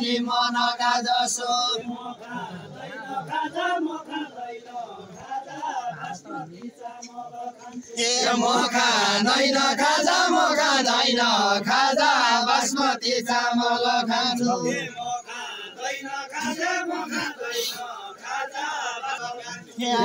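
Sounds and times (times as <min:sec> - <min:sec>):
men singing folk song in chorus: 0:00.0 - 0:20.0.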